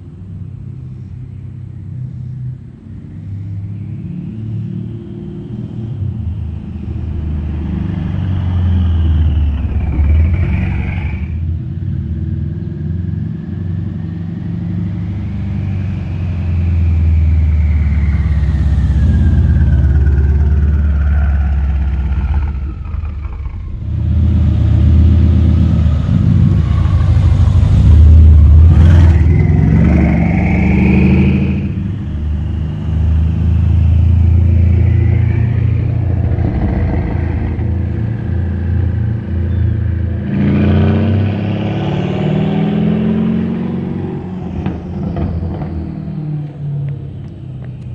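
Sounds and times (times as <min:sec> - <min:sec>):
car exhaust revving: 0:15.8 - 0:46.5
exhaust crack: 0:17.8 - 0:30.6, 0:33.5 - 0:39.4.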